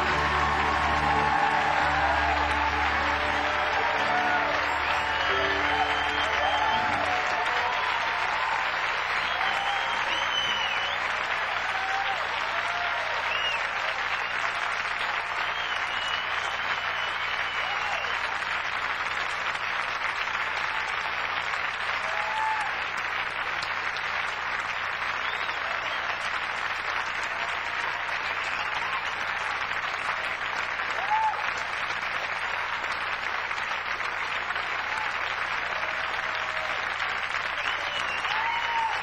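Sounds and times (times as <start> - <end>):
short cheers: 0.0 - 18.4, 21.9 - 22.9, 30.8 - 31.7, 34.8 - 39.0
audience applauding: 0.0 - 39.0.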